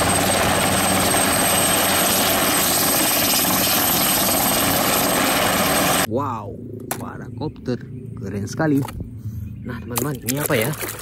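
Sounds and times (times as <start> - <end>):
helicopter engine and rotor: 0.0 - 6.1.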